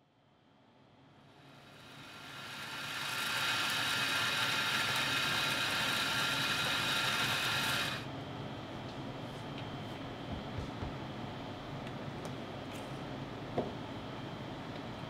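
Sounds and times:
electric coffee grinder whining: 1.6 - 8.0.

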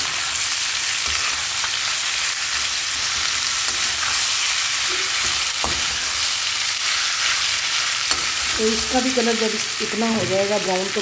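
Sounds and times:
vegetables sizzling in oil: 0.0 - 11.0
spatula stirring: 1.0 - 8.9.

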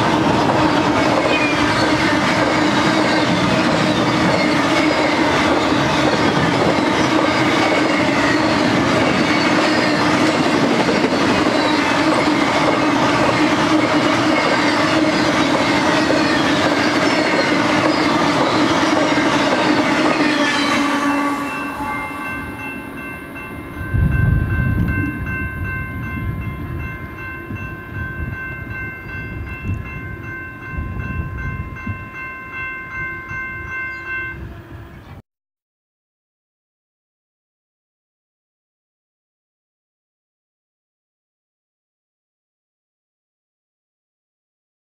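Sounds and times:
crossing warning bell ringing: 0.0 - 35.0
freight train rolling on rails: 0.0 - 35.2
wheel squealing tone: 13.8 - 23.5.

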